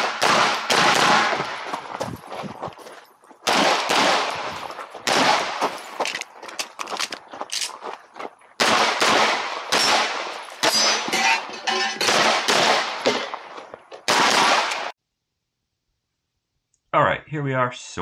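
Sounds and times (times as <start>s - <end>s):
pistol shots ringing: 0.0s - 1.7s, 3.4s - 5.8s, 8.6s - 13.4s, 14.1s - 14.9s.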